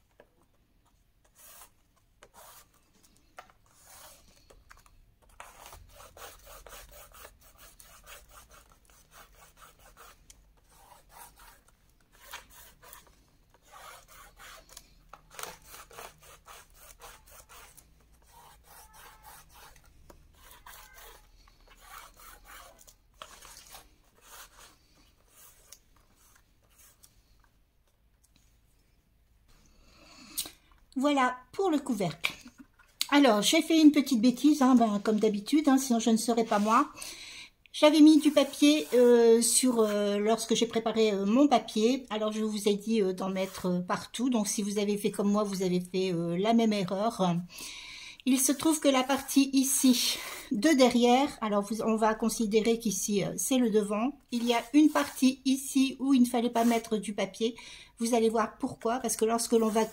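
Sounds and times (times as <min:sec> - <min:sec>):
hands rubbing paper: 0:05.4 - 0:27.2, 0:37.9 - 0:39.9, 0:54.4 - 0:55.6, 0:56.4 - 0:57.0, 0:59.2 - 0:59.9.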